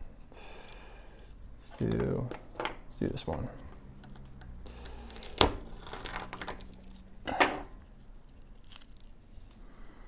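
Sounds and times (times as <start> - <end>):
crackly tearing: 4.2 - 7.1, 7.8 - 9.2
knife cracking into dry sac: 4.8 - 6.7.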